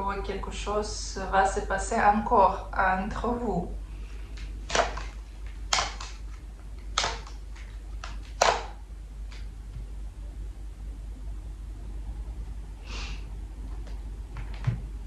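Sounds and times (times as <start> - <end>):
low steady hum: 0.0 - 15.0
card flicks and rustles: 4.3 - 9.5
cards snapping on table: 4.4 - 9.5.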